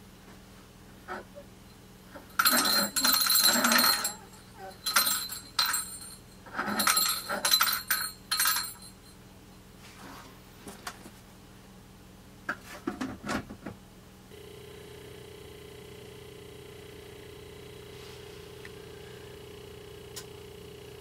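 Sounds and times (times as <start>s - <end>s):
metallic clinking and jingling: 2.2s - 9.2s.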